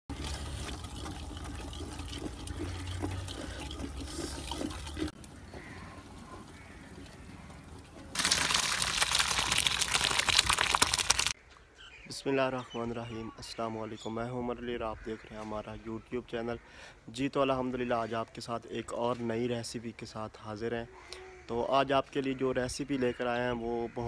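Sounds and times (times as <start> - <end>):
water splashing into colander: 0.1 - 5.2, 8.1 - 11.4.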